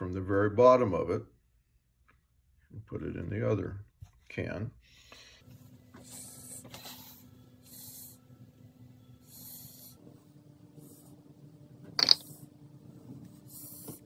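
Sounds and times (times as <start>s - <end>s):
baster air hisses: 6.0s - 8.3s, 9.2s - 10.0s, 13.4s - 14.0s.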